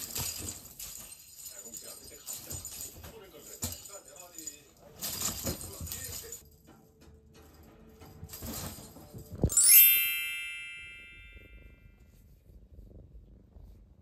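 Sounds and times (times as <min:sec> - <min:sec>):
cat toy jingling and rattling: 0:00.0 - 0:06.7, 0:08.0 - 0:11.4
sparkly chime sound effect: 0:09.5 - 0:12.0.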